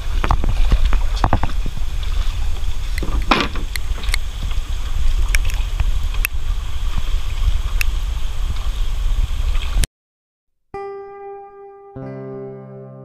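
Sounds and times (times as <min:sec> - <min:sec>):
boat engine rumble: 0:00.0 - 0:09.8.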